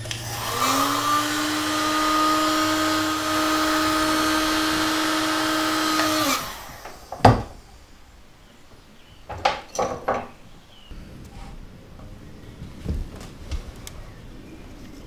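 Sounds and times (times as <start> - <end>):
electric motor humming: 0.0 - 7.6
tools clattering on wooden workbench: 9.3 - 10.4.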